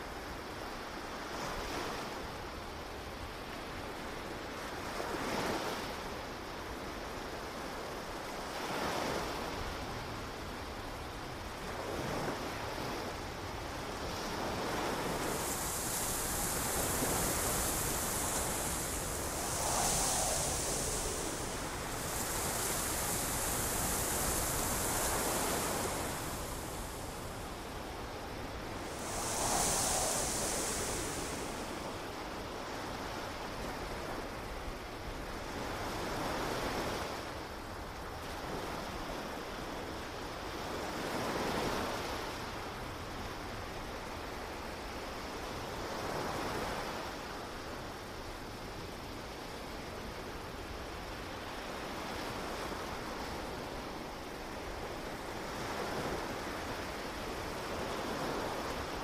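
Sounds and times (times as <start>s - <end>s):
ocean surf washing onto beach: 12.6s - 34.4s
steady high hiss: 13.5s - 34.8s.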